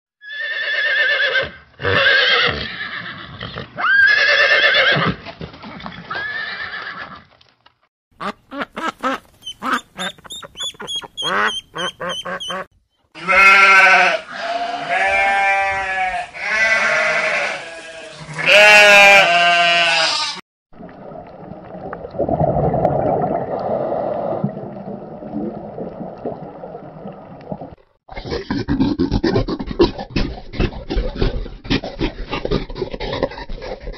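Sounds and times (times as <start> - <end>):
horse neighing: 0.2 - 5.2
loud drawn-out bleats: 13.2 - 20.4.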